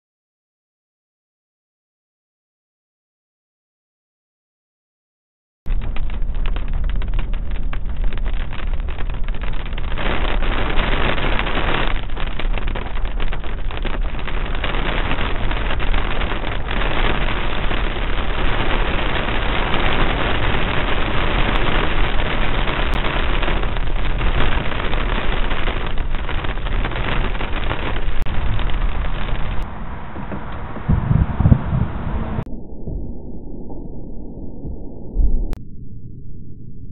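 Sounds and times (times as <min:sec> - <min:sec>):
rain on windscreen and roof: 0:05.7 - 0:32.5
tyres hissing on wet road: 0:14.3 - 0:31.0.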